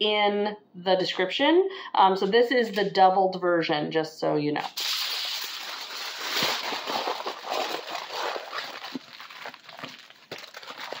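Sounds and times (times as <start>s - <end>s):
aluminium foil crinkling: 4.7s - 11.0s.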